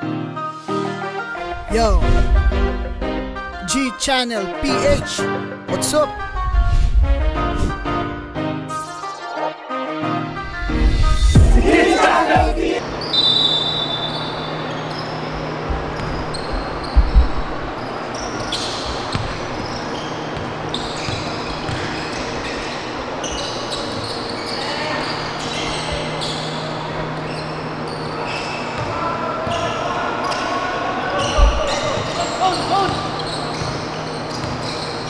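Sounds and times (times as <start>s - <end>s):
steady hall hum: 1.3s - 5.4s, 6.0s - 8.8s, 10.5s - 34.2s
players' voices: 1.6s - 2.3s, 3.5s - 6.1s, 11.4s - 12.8s
sneakers squeaking: 11.7s - 35.0s
basketball bouncing: 18.9s - 19.7s.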